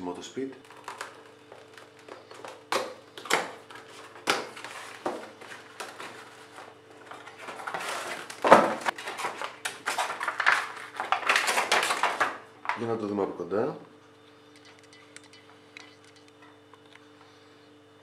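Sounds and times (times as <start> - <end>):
cardboard and plastic rustling: 0.4 - 12.9.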